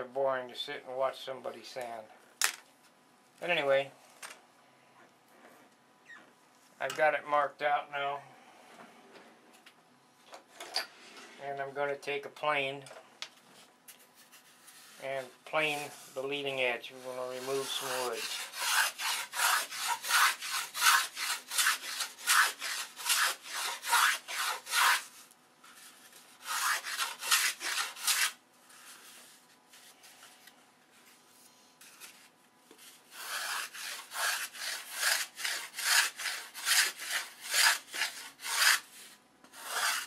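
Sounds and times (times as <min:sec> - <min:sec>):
hand plane shaving wood: 0:16.9 - 0:25.2, 0:25.8 - 0:29.2, 0:32.8 - 0:40.0.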